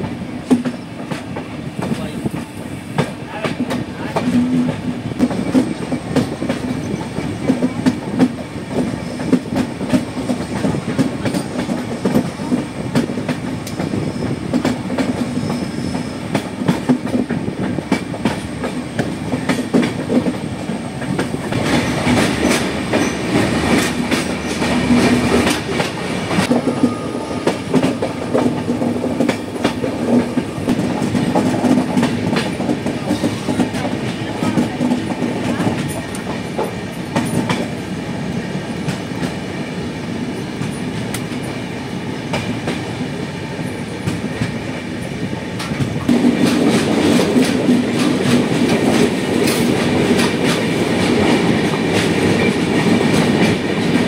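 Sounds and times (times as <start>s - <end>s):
train wheels rumbling: 0.0s - 54.0s.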